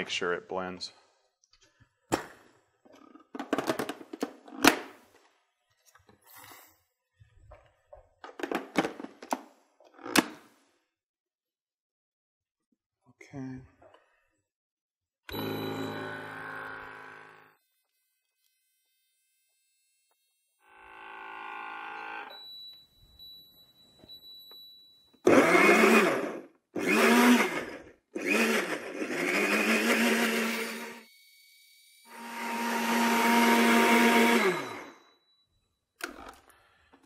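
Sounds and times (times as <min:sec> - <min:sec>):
blender motor running: 0:15.3 - 0:22.3, 0:25.2 - 0:35.0.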